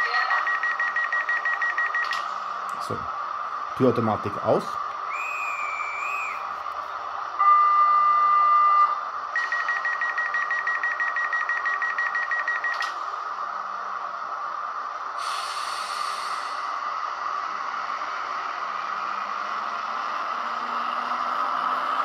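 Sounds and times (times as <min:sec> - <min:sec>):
standing train hum: 0:00.0 - 0:21.4
rapid door warning beeps: 0:00.2 - 0:02.2, 0:07.4 - 0:13.0
long beep: 0:00.3 - 0:02.2, 0:07.4 - 0:12.9
compressed air hiss: 0:15.2 - 0:16.7.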